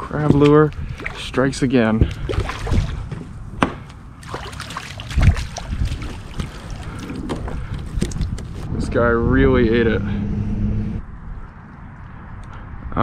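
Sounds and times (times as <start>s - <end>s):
water dripping and splashing: 0.0s - 3.0s, 4.2s - 8.6s.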